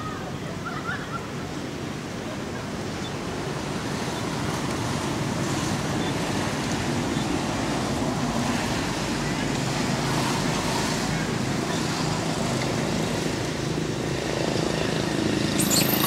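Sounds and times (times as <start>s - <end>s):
rushing outdoor background noise: 0.0s - 16.0s
faint monkey squeaks: 15.6s - 16.0s.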